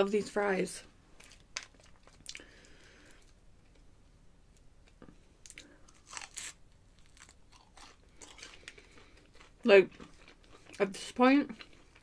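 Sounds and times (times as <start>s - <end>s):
chewing: 1.2s - 3.8s, 4.8s - 12.0s
crunching crispy fries: 5.4s - 12.0s.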